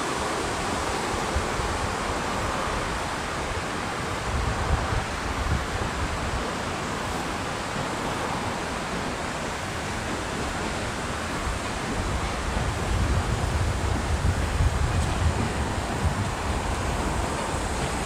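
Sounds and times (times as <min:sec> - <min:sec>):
rushing outdoor background noise: 0:00.0 - 0:18.0
wind buffeting microphone: 0:00.0 - 0:18.0.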